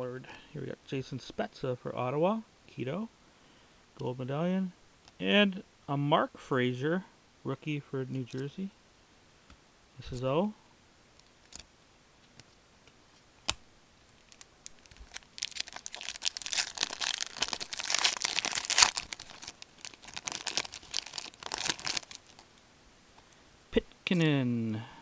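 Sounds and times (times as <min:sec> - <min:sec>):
foil wrapper tearing and crinkling: 0:14.2 - 0:22.5.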